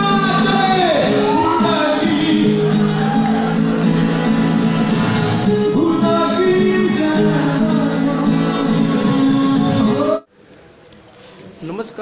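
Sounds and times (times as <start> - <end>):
man singing: 0.0 - 3.1, 5.4 - 10.3
acoustic guitar chords: 0.0 - 10.3.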